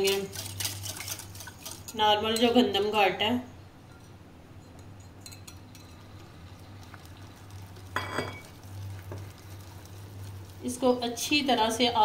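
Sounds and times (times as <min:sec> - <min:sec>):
whisk clinking against glass bowl: 0:00.0 - 0:02.6, 0:03.9 - 0:06.2.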